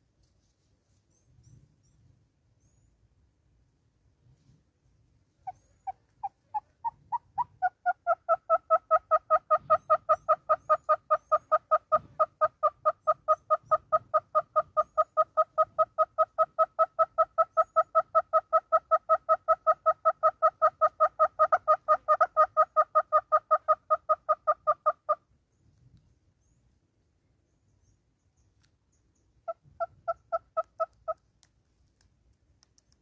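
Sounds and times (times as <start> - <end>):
hornbill clucking calls: 5.4 - 25.2, 29.4 - 31.3.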